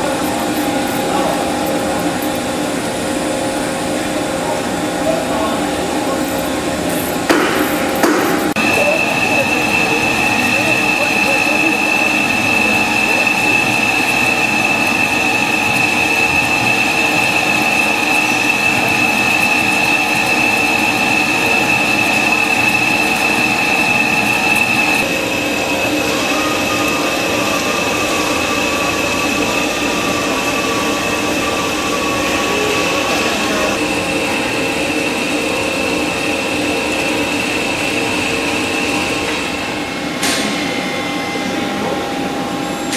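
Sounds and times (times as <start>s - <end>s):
lathe cutting with high whine: 0.0s - 42.9s.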